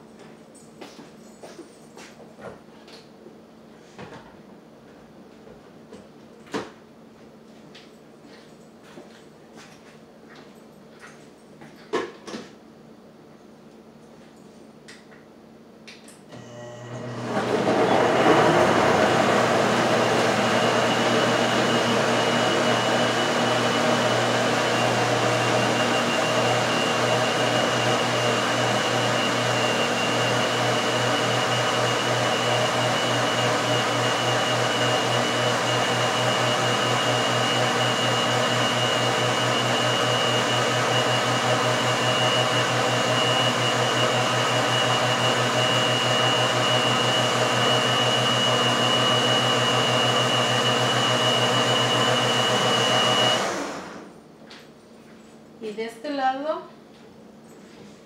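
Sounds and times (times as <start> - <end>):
blender running: 16.3 - 54.2.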